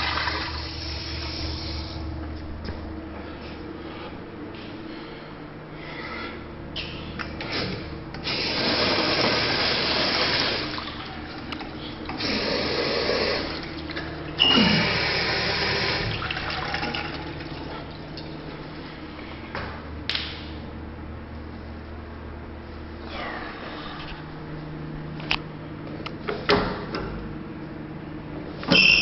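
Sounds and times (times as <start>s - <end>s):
urinal flushing: 0.0s - 2.0s, 7.4s - 18.6s
steady low hum: 0.0s - 29.0s.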